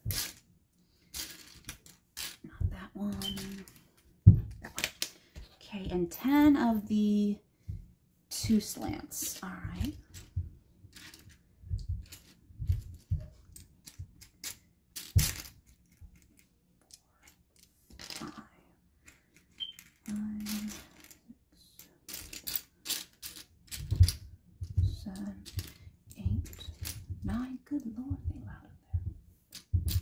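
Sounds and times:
plastic blocks clicking and rattling: 0.1 - 0.4, 1.1 - 2.5, 3.1 - 3.8, 10.9 - 18.4, 19.0 - 21.2, 21.8 - 25.8.

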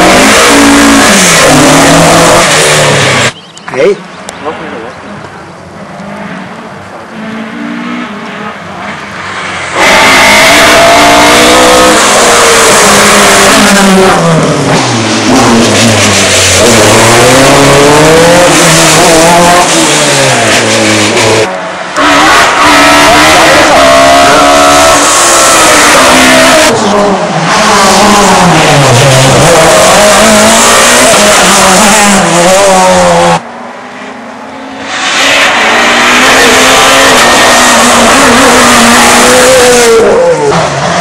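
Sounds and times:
rally car engines at full throttle: 0.0 - 41.0.

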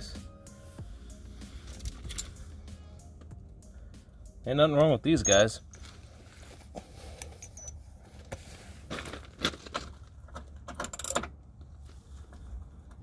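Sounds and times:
metallic clicks of bolts and tools: 1.7 - 2.4, 7.2 - 7.8, 10.6 - 11.4.

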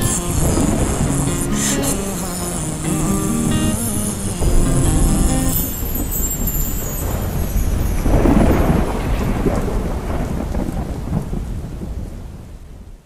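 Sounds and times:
steady rain: 0.0 - 13.0
rumbling thunder: 4.4 - 12.9.

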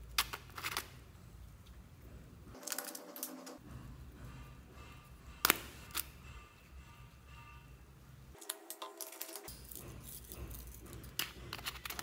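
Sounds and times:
plastic tubes clicking and rattling: 8.4 - 12.0.

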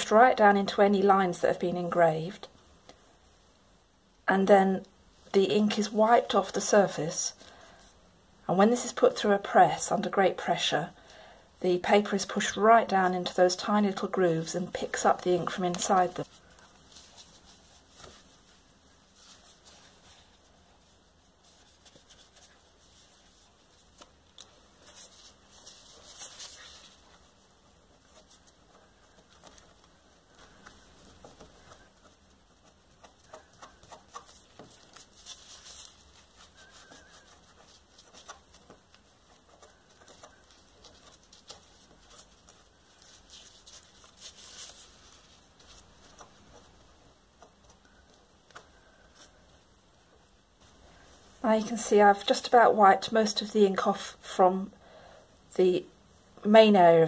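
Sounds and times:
gloved hands rustling and scuffing: 14.9 - 49.7.

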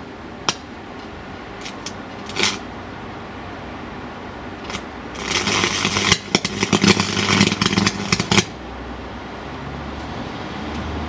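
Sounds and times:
crackling electric arc: 1.5 - 2.7, 4.6 - 8.8.

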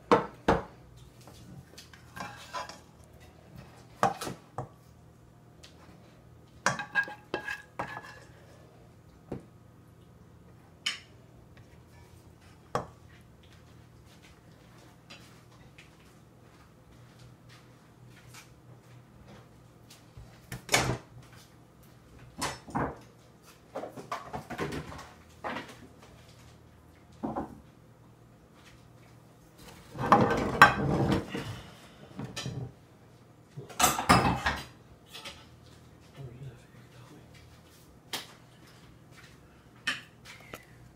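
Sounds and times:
dishes and utensils clattering: 1.8 - 4.4, 6.6 - 8.5, 29.9 - 31.6, 32.2 - 32.8, 33.6 - 35.7.

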